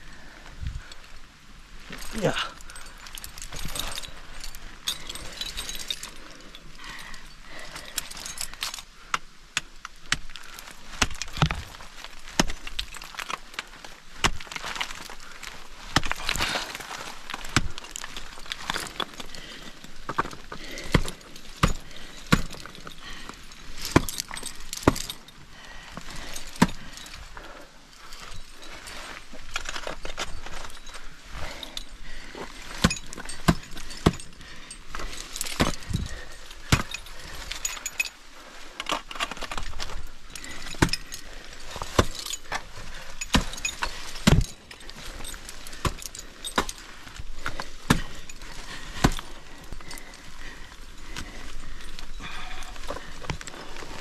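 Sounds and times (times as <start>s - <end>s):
metal climbing gear clinking: 0.0s - 54.0s
ice axe chopping ice: 8.0s - 13.4s, 14.1s - 25.3s, 26.0s - 27.2s, 32.6s - 37.9s, 38.9s - 50.2s.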